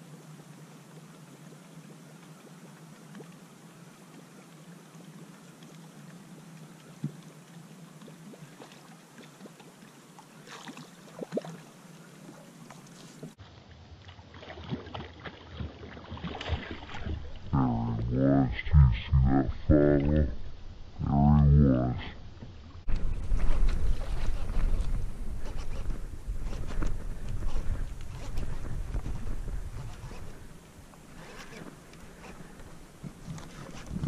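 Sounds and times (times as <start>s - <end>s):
low hum: 16.6s - 34.0s
wind noise: 22.9s - 31.5s, 33.0s - 34.0s.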